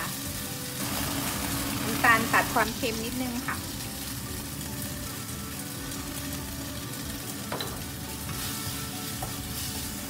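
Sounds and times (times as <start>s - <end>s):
meat sizzling in a wok: 0.0s - 10.0s.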